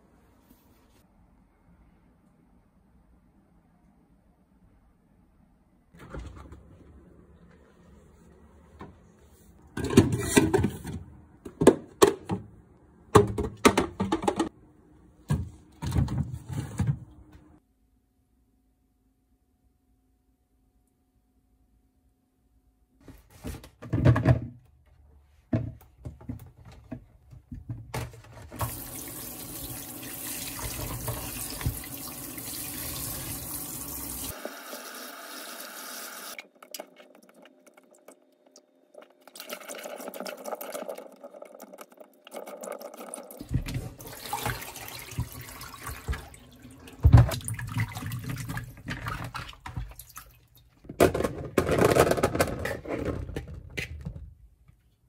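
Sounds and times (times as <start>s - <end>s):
tap water running into sink: 28.6s - 36.4s, 39.0s - 50.3s
grapes rinsed splashing: 42.2s - 50.8s.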